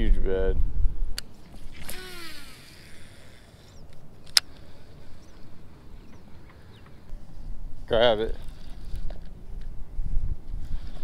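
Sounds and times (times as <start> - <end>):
fishing reel spool whirring: 1.3 - 6.8
sharp click: 3.9 - 4.6.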